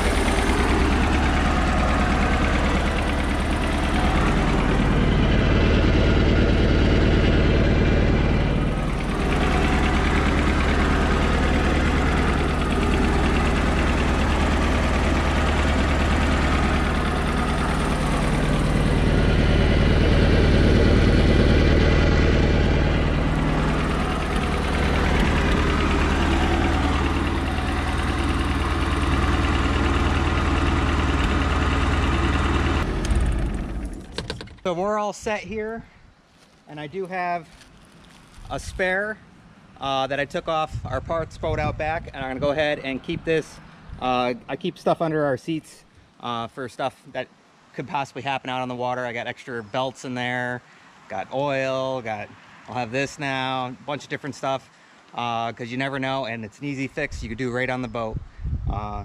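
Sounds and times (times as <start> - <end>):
boat engine running: 0.0 - 34.6.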